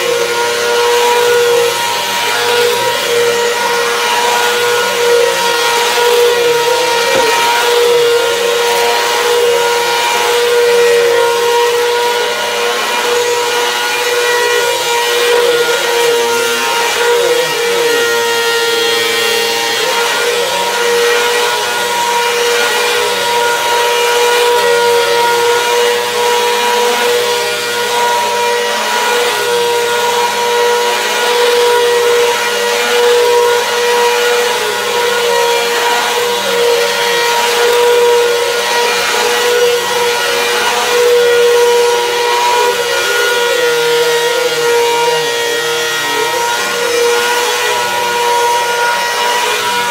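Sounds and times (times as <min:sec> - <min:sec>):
vacuum cleaner running: 0:00.0 - 0:49.9.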